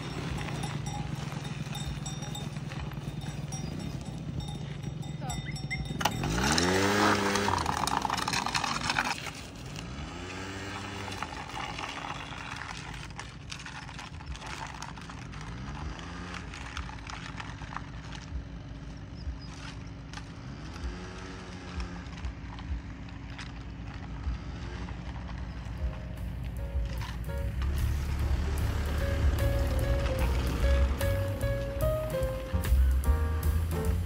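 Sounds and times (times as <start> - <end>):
hooves on pavement: 0.0 - 34.0
motor scooter engine idling: 0.0 - 34.0.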